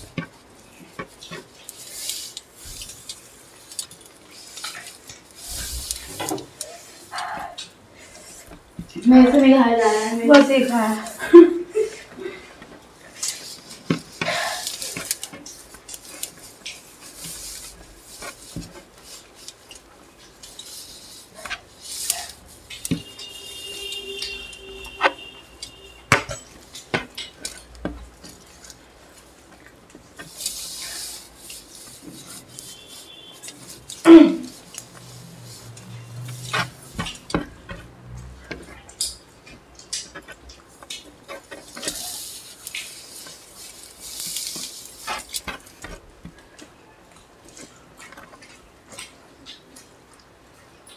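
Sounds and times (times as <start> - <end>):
cutlery scraping against plates: 13.1 - 28.8.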